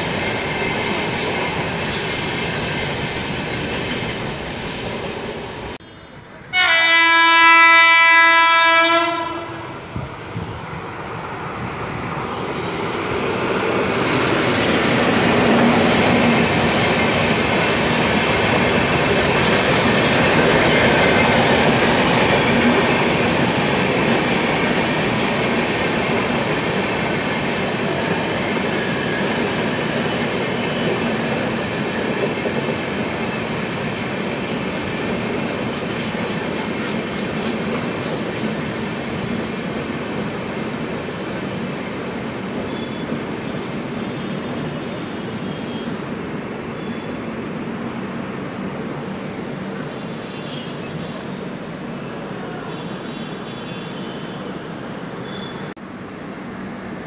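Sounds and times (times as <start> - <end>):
train coaches rumbling and clattering: 0.0 - 57.0
locomotive horn blast: 5.8 - 9.8.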